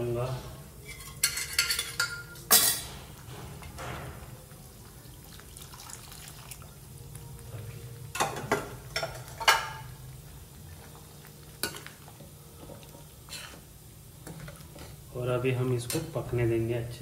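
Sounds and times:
low steady hum: 0.0s - 17.0s
spoon clinking against a pot: 0.8s - 2.9s, 8.1s - 10.0s, 11.6s - 12.8s.

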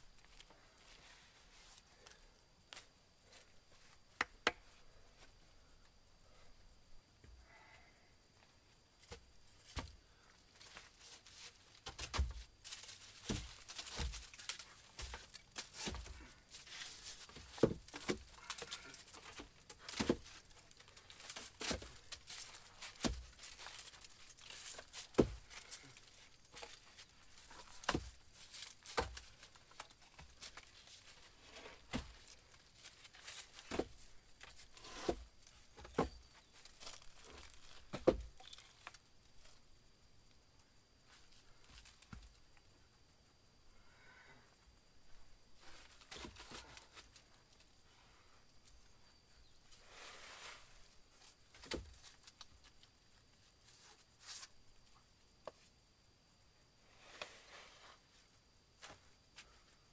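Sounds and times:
dry leaves rustling: 12.6s - 15.9s.

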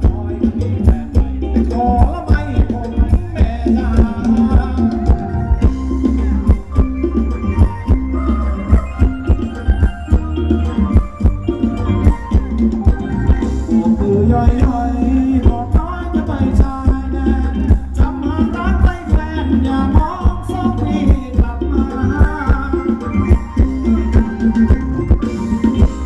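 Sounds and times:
drum beat: 0.0s - 26.0s
person singing melody: 0.0s - 26.0s.

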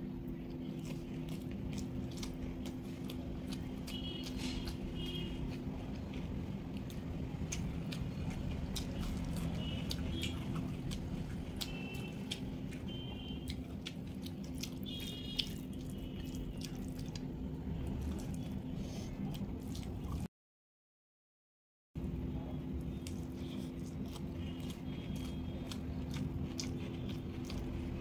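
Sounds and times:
steady low hum: 0.0s - 20.3s
person chewing with wet clicks: 0.2s - 20.3s, 22.7s - 28.0s.

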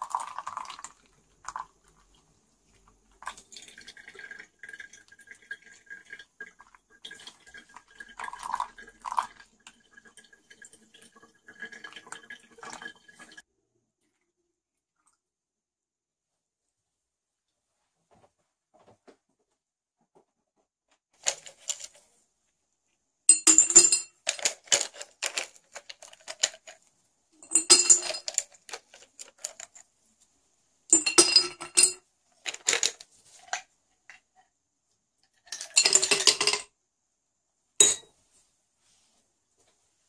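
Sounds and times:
ice cubes clinking in glass bottle: 23.3s - 26.8s, 27.4s - 29.8s, 30.9s - 33.6s, 35.4s - 36.7s.

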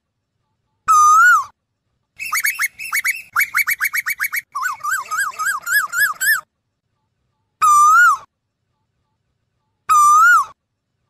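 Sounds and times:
bird calling: 2.2s - 6.4s.

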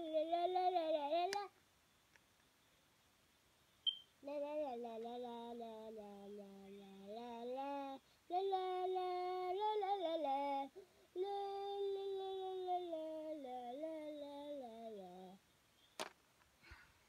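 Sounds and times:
child singing long notes: 0.0s - 1.5s, 4.2s - 15.4s.

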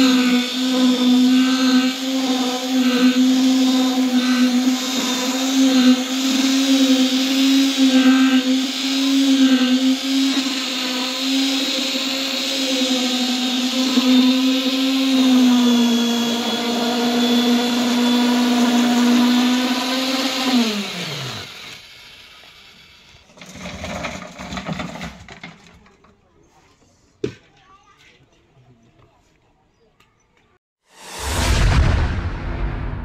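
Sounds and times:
knocks and scrapes: 23.3s - 28.5s.

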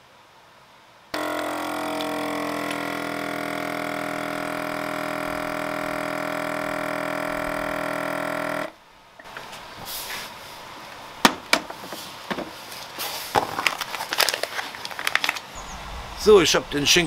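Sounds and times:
quiet hiss: 0.0s - 1.2s, 8.7s - 17.0s
vacuum sealer pump humming: 1.2s - 9.5s.

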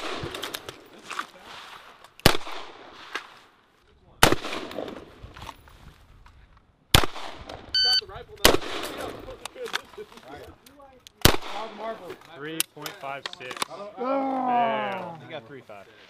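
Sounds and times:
rifle shots echoing: 2.2s - 3.1s, 4.2s - 5.1s, 6.9s - 7.6s, 8.4s - 9.2s, 11.2s - 11.9s
shot timer beep: 7.8s - 8.0s.

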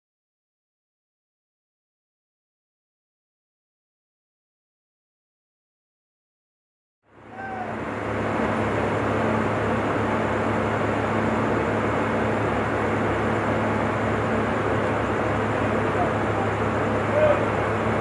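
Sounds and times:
diesel engine idling: 7.1s - 18.0s.

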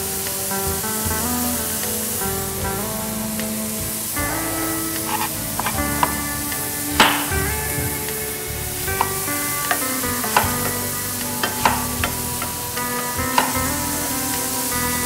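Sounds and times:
soft background music: 0.0s - 15.0s
knife slicing tomato: 5.1s - 6.1s.

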